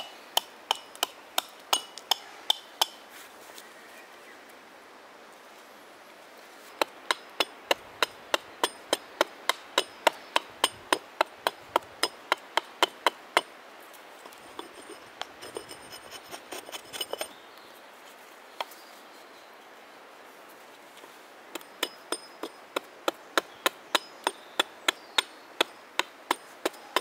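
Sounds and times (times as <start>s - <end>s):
hatchet chopping wood: 0.0s - 3.0s, 6.8s - 13.5s, 21.6s - 27.0s.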